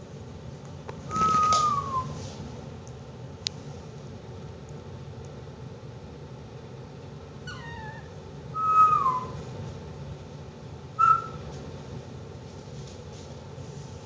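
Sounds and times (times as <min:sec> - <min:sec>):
puppy whining: 0:07.4 - 0:09.4, 0:11.0 - 0:11.4.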